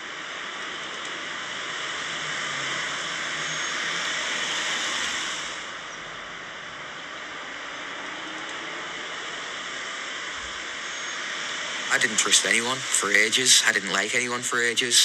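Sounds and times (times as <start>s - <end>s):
steady rushing hiss: 8.7s - 15.0s.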